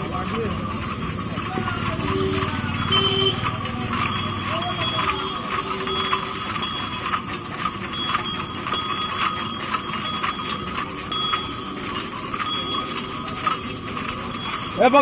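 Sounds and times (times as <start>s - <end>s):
brass bells clanking: 0.0s - 15.0s.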